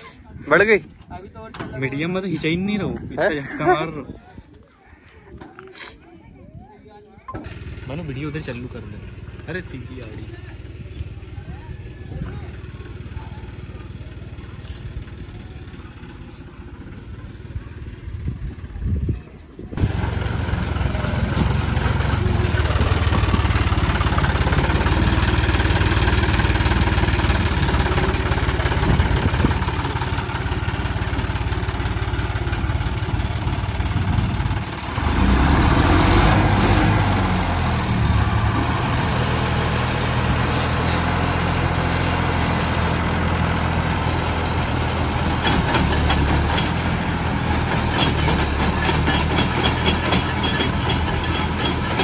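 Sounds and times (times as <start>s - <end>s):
tractor diesel engine running: 7.1s - 52.0s.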